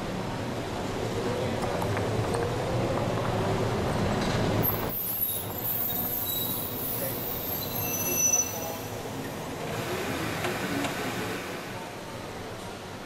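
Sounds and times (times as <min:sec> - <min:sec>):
trolleybus passing: 0:00.0 - 0:13.0
high-pitched squeal: 0:04.6 - 0:09.0.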